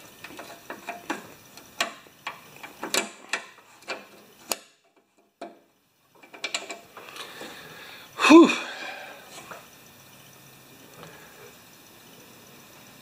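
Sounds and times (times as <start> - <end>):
small metal clicks and knocks: 0.1 - 7.2.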